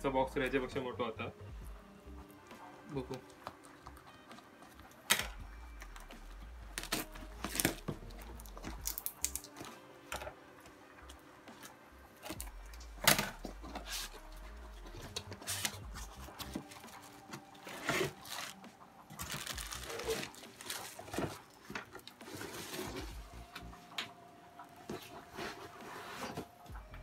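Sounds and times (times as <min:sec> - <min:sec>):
packing tape ripping: 0:06.7 - 0:09.7, 0:15.0 - 0:23.0
cardboard flaps scraping: 0:17.6 - 0:18.6.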